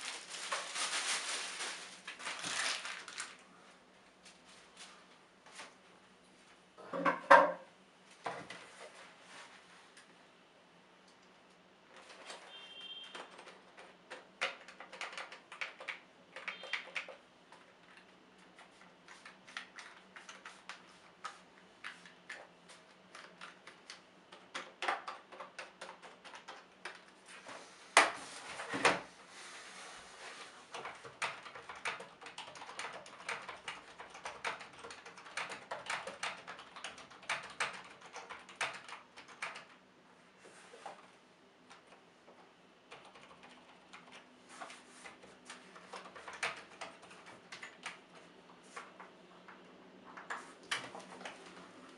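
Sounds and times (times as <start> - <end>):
keyboard keys clicking: 13.1 - 20.8, 23.1 - 27.1, 30.7 - 39.8, 42.9 - 44.2, 45.5 - 48.0.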